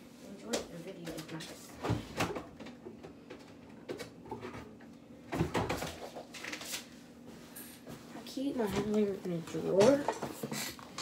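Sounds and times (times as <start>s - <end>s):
knocks and clatter of objects: 1.2s - 6.6s, 8.6s - 11.0s.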